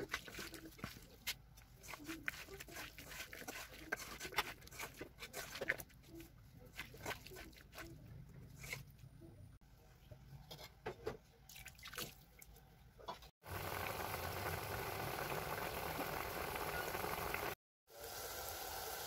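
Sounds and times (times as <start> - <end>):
hand squelching fish in paste: 0.0 - 9.0
pot boiling and bubbling: 13.4 - 19.0.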